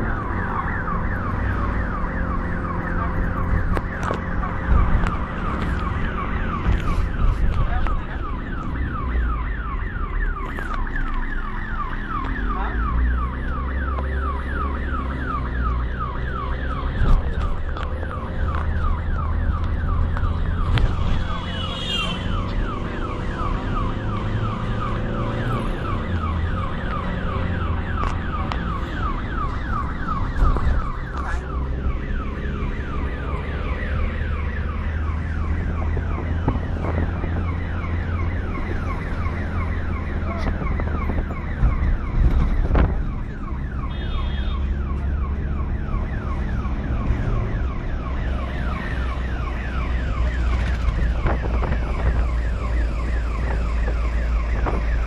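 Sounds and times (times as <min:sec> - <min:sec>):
ambulance siren: 0:00.0 - 0:55.0
engine and road rumble: 0:00.0 - 0:55.0.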